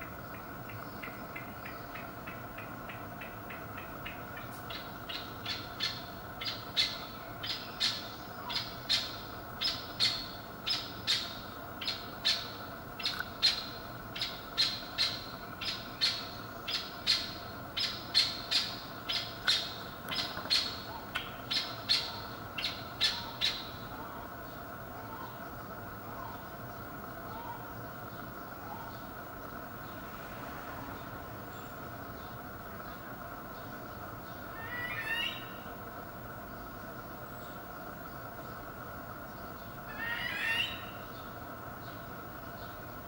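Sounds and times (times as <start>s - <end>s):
partridge calling: 0.0s - 25.4s, 34.2s - 35.7s, 39.6s - 41.4s.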